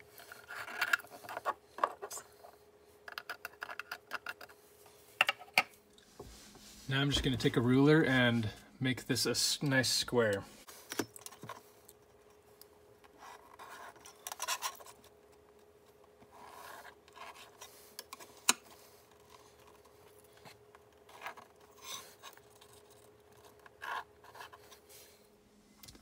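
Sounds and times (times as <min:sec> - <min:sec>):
pen scratching on drywall: 0:23.4 - 0:24.8.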